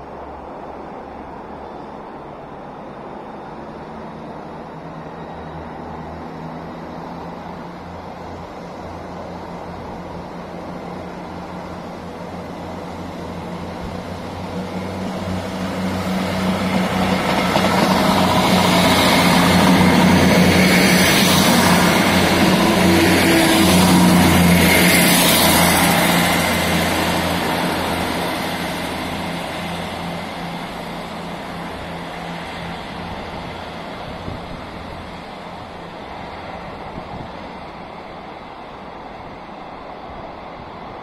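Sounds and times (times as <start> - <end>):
train engine hum: 0.0 - 41.0
train wheel rush: 0.0 - 41.0.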